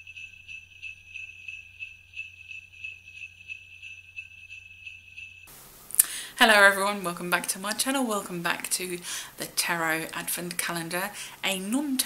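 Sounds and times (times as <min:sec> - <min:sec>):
jingle bells shaken: 0:00.0 - 0:05.5.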